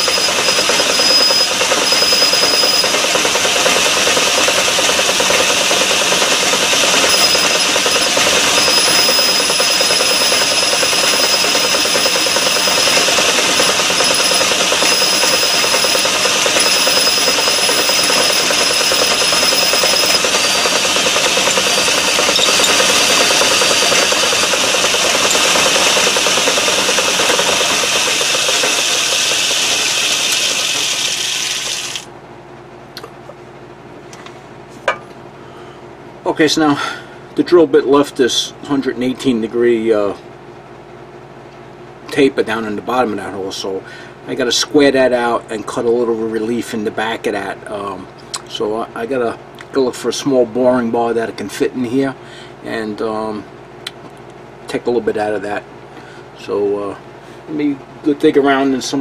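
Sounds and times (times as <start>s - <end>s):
metal lathe drilling with whine: 0.0s - 32.0s.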